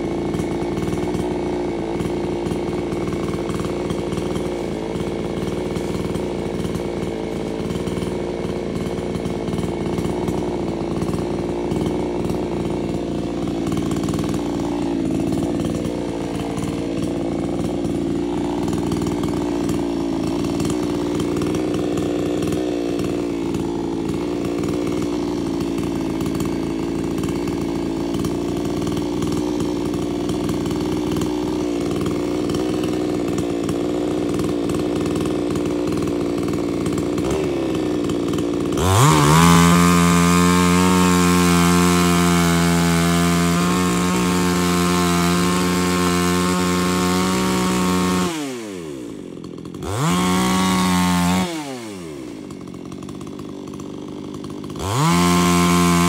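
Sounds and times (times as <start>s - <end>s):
chainsaw revving: 0.0s - 56.0s
engine running steadily: 0.0s - 56.0s.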